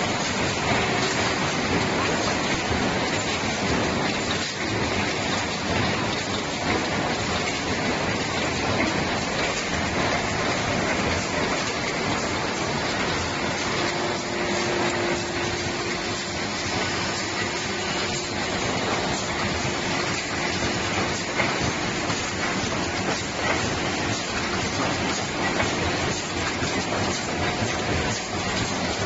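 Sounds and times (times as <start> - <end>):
factory machinery din: 0.0 - 29.0.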